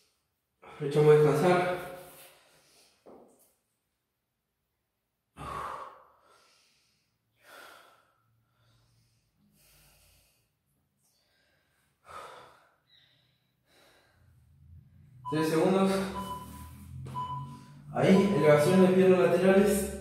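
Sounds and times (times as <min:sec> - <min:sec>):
man breathing out hard: 0:05.4 - 0:10.5, 0:11.2 - 0:14.5.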